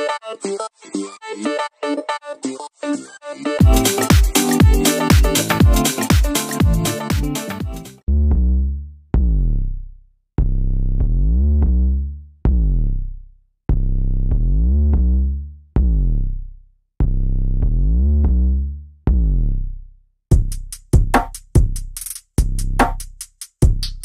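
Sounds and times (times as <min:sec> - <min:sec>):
deep synth bass notes: 0:03.6 - 0:06.0, 0:06.6 - 0:19.8.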